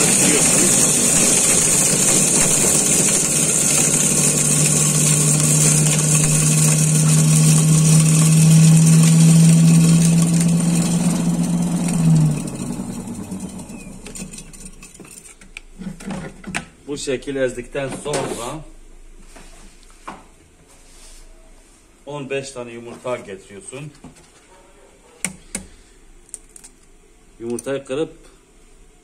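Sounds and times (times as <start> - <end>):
motor spinning down: 0.0 - 14.5
food processor motor humming: 0.0 - 15.2.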